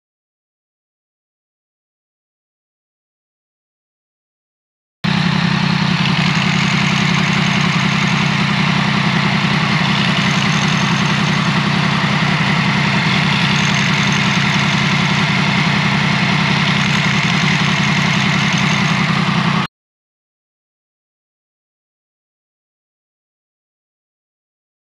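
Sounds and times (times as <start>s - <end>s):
motorcycle engine idling: 5.1s - 19.7s.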